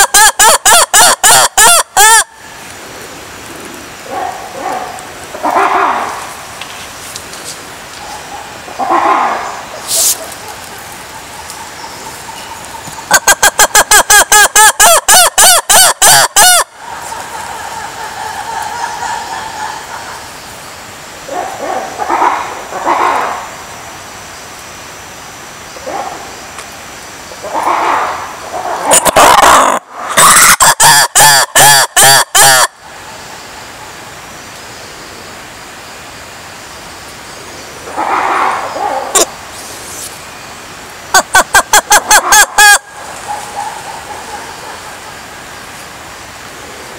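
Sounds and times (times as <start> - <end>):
background hiss: 0.0 - 46.9
lemur rough noisy call: 4.1 - 6.4, 8.1 - 10.5, 27.4 - 32.8, 37.8 - 40.1
lemur calling: 8.0 - 20.2
lemur short sharp call: 8.8 - 10.3.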